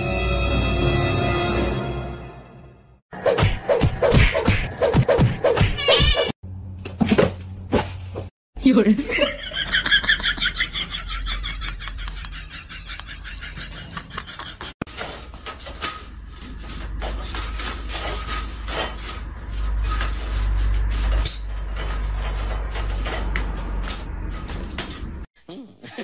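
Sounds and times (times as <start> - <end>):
blind slats clicking and clattering: 14.9 - 25.2.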